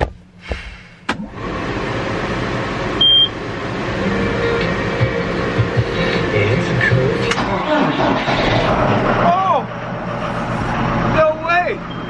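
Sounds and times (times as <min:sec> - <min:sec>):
diesel engine running roughly: 0:00.3 - 0:12.0
electronic warning beep: 0:03.0 - 0:03.4.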